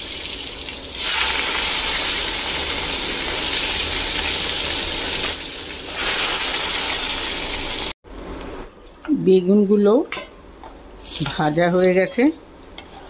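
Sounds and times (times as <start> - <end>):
vegetables sizzling in hot oil: 0.0 - 8.0.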